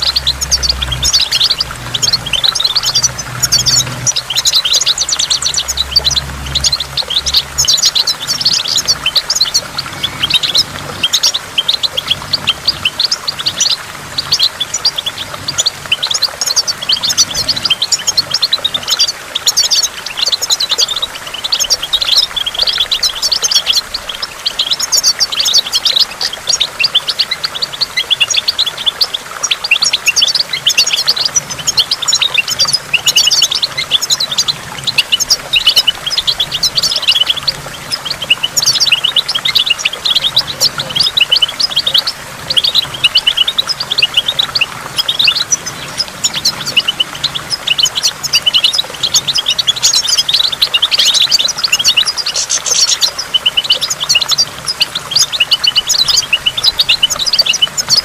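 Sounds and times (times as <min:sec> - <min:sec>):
finch twittering song: 0:00.0 - 0:58.0.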